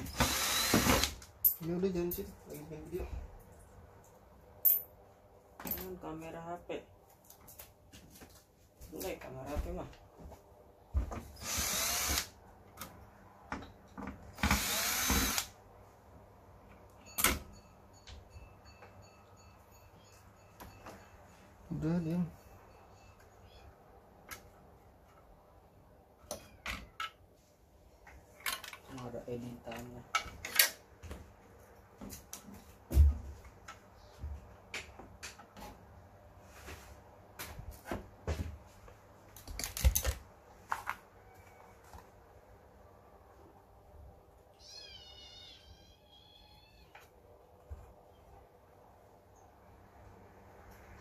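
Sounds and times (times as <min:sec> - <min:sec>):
electric screwdriver whining: 0:00.1 - 0:01.1, 0:11.4 - 0:12.3, 0:14.4 - 0:15.5.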